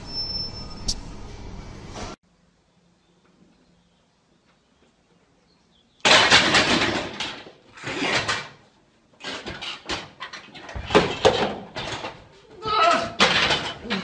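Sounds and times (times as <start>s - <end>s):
bangs and thumps: 6.0s - 8.6s, 9.2s - 14.0s
barbell crashing onto steel arms: 6.0s - 8.6s, 13.0s - 14.0s.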